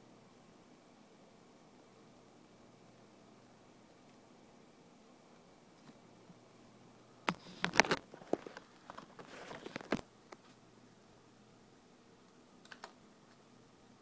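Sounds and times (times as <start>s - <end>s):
rustling: 7.3s - 10.6s
sharp clicks: 12.3s - 13.4s.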